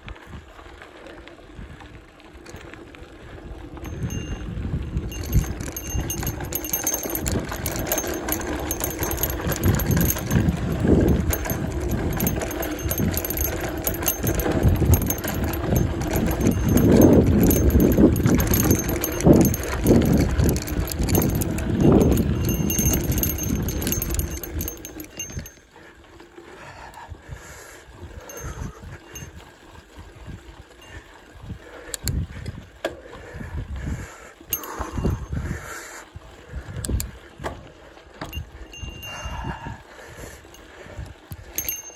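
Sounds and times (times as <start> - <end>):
bike tyres on dirt: 0.0 - 41.9
bike rattling and knocking: 2.3 - 25.7, 28.1 - 29.4, 34.5 - 35.5, 36.8 - 41.9.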